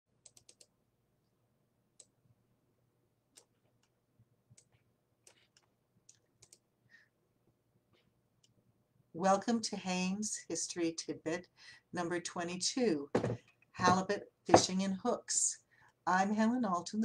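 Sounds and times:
faint small clicks: 3.4 - 6.6.

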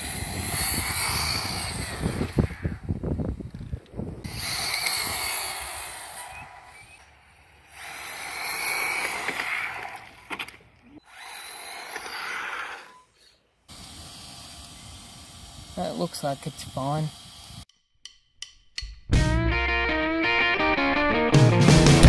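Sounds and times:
tyre hiss on asphalt: 0.0 - 2.5, 4.3 - 10.2, 12.0 - 17.7
rc car motor whine: 0.0 - 3.0, 4.2 - 17.6.

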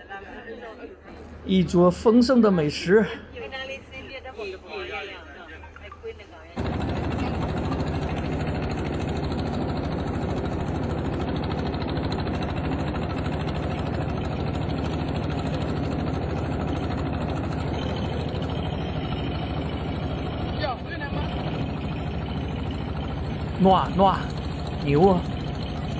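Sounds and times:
boat engine droning: 6.6 - 25.9.

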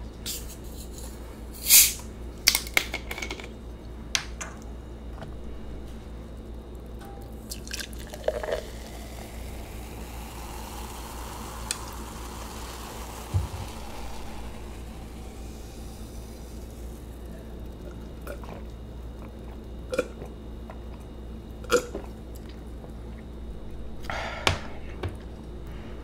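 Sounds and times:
gas hissing from bottle: 0.3 - 2.1, 7.7 - 18.0
cola pouring and fizzing: 7.3 - 23.3.

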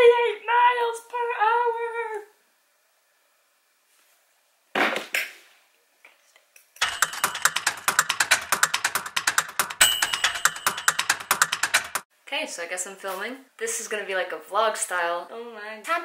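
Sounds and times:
rapid clicking: 6.8 - 12.0.

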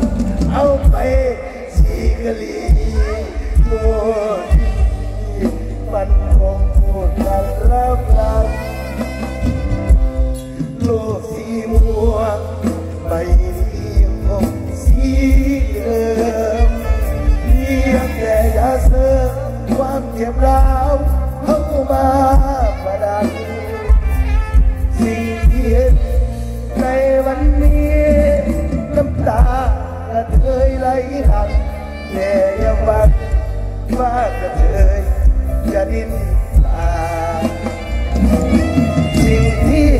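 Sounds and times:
person singing wavering melody: 0.0 - 29.7
band with bass drum beat: 0.0 - 39.9.

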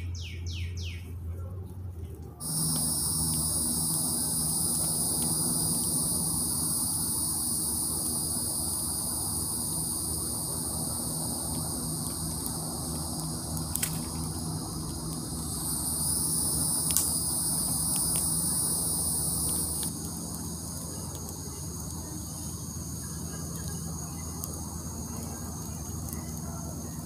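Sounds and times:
crickets and insects trilling: 2.4 - 27.0
loud high insect trill: 2.4 - 27.0
sharp clicks: 10.7 - 22.0.

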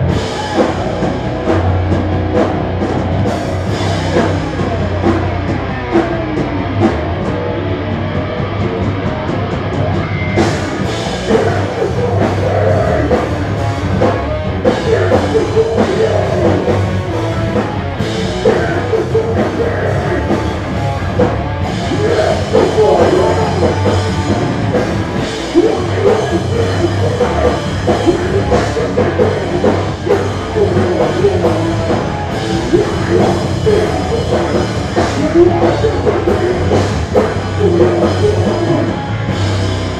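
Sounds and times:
bass guitar: 0.0 - 39.9
distorted electric guitar: 0.0 - 39.9
drum kit: 0.0 - 39.9
vocalist: 10.6 - 39.4.

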